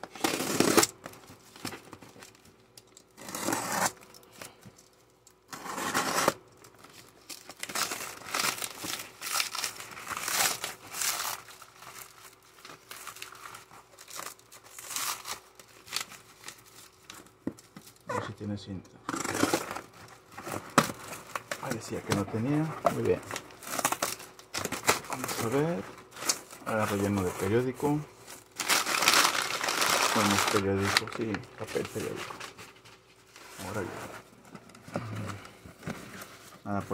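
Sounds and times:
knife slitting plastic wrap: 0.1s - 1.0s, 28.6s - 32.2s
plastic wrap crinkling and tearing: 5.8s - 18.1s, 19.1s - 33.9s.

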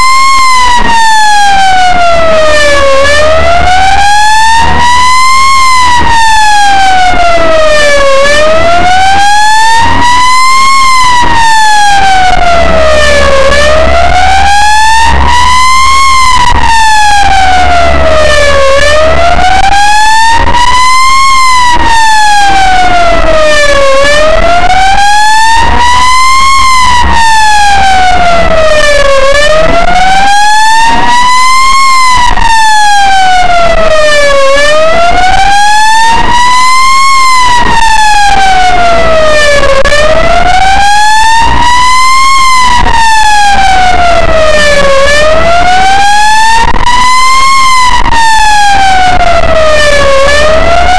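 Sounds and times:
ambulance siren wailing: 0.0s - 50.9s
low road rumble: 0.0s - 50.9s.

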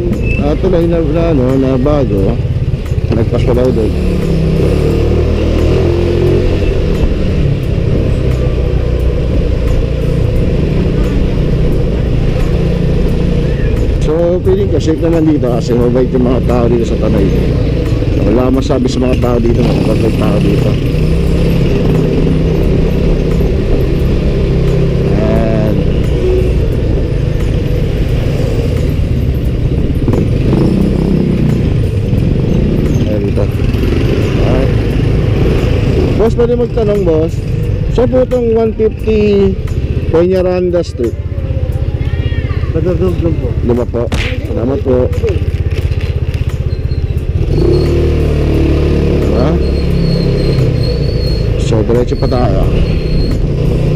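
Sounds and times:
motorcycle engine running: 0.0s - 53.9s
motor scooter engine running: 39.1s - 51.6s.

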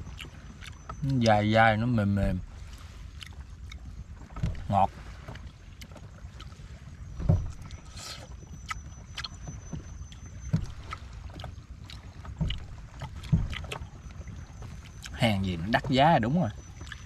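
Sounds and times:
water around a raft: 0.0s - 17.0s
wind: 0.0s - 17.0s
soft knocks: 12.3s - 13.9s.

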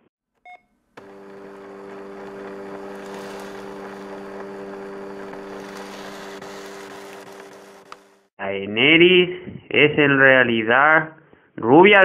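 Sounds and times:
fax machine motor hum: 1.0s - 8.3s.

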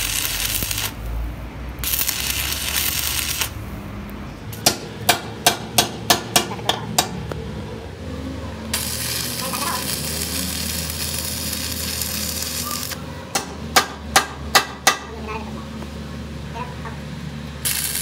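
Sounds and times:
welding arc crackling and hissing: 0.0s - 1.2s, 1.8s - 3.6s, 8.7s - 13.0s, 17.6s - 18.0s.

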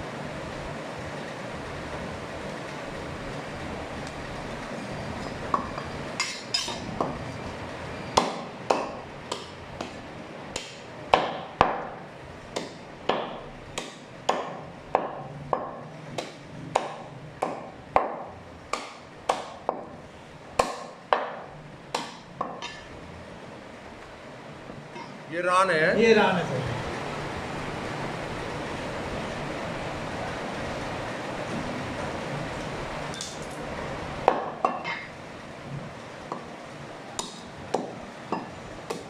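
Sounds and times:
cleaver chopping meat and bone: 8.2s - 20.0s, 20.6s - 22.8s, 37.2s - 39.0s.

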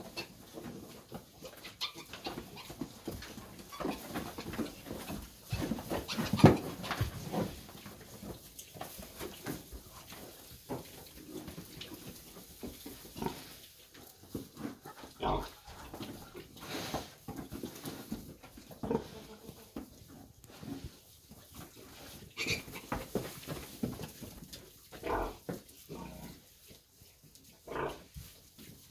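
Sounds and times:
pigs calling: 14.8s - 16.8s, 25.0s - 26.4s.

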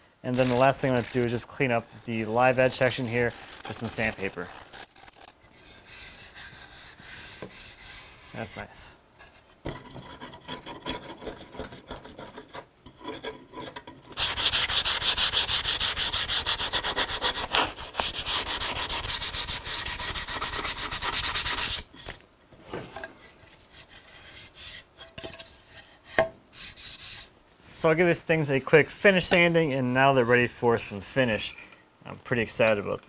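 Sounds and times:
sandpaper rubbing on wood: 0.3s - 8.8s, 14.2s - 21.9s, 26.6s - 27.3s.

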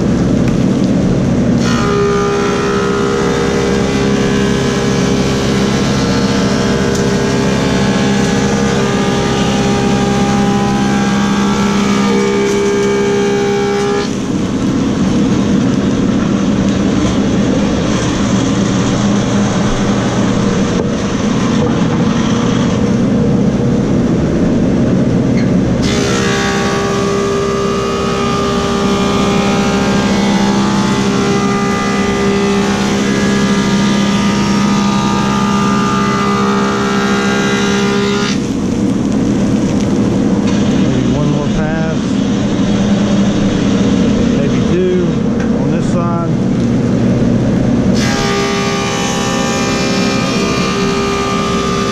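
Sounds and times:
planer rushing as wood is planed: 0.0s - 23.2s, 25.8s - 38.8s, 47.9s - 51.9s
planer motor hum and whine: 0.0s - 51.9s.

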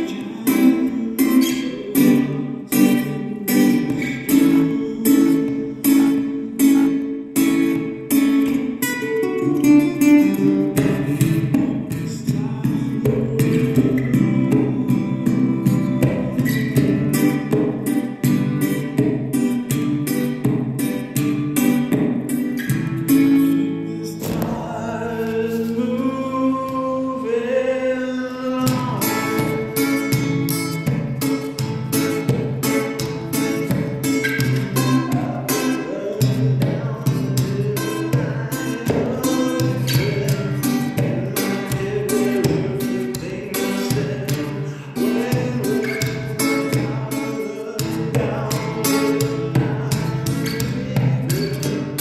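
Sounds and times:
acoustic guitar strumming: 0.0s - 52.0s.

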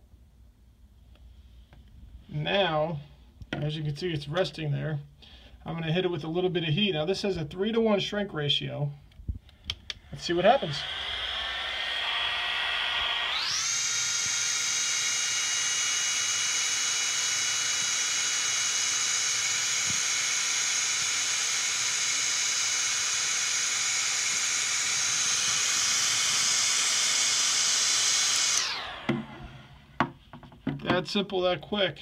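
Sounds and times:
heat gun fan whine: 9.5s - 30.1s.

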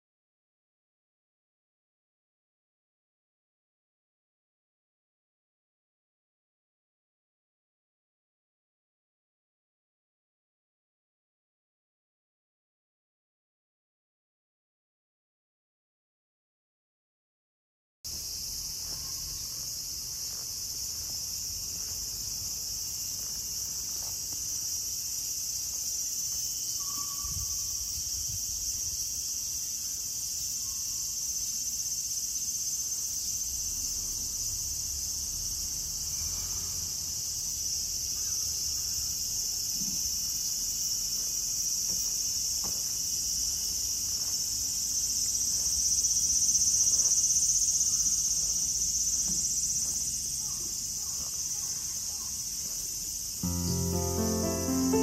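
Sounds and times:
cicadas singing: 18.1s - 55.0s
faint brief tone: 26.8s - 27.8s.

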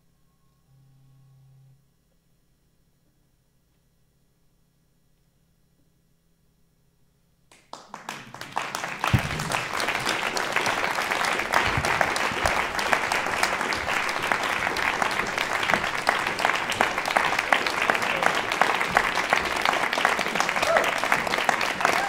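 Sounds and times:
audience applauding: 7.5s - 22.0s.

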